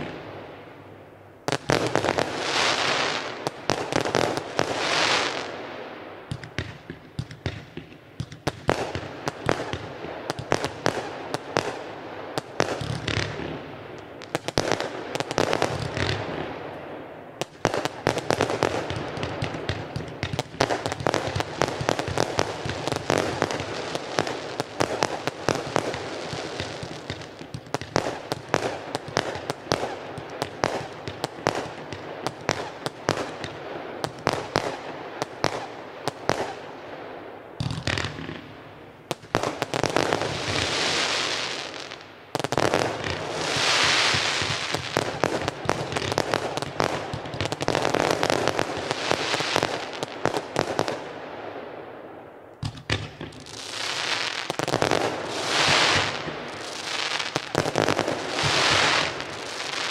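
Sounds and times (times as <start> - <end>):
firework crackle: 1.5 - 36.7, 37.6 - 51.2, 52.6 - 59.9
fireworks shots and bangs: 6.3 - 36.8, 37.6 - 51.8, 52.6 - 59.9.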